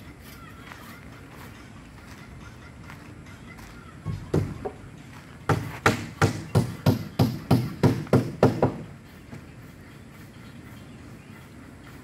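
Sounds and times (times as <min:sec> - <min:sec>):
hammer striking wood: 0:05.5 - 0:08.9.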